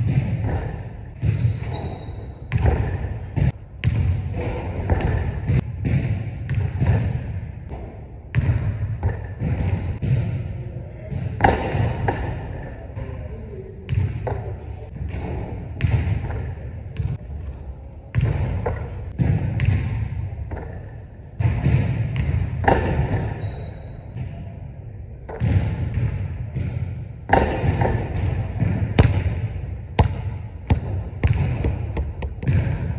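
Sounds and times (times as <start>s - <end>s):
basketball bouncing on hardwood floor: 0.0s - 10.3s, 25.3s - 32.9s
ball striking rim and backboard: 0.0s - 10.4s, 11.1s - 12.9s, 13.9s - 17.2s, 18.1s - 24.2s, 25.3s - 32.9s.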